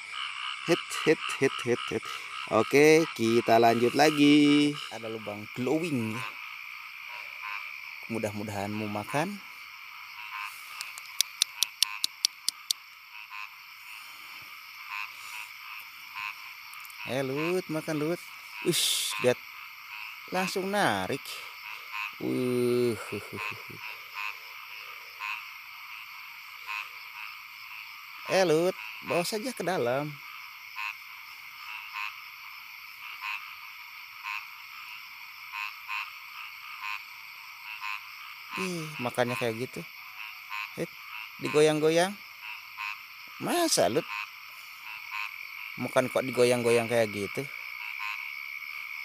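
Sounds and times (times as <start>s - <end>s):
frogs croaking: 0.0s - 49.0s
high frog chorus: 0.0s - 49.0s
sharp clicks: 10.7s - 12.8s.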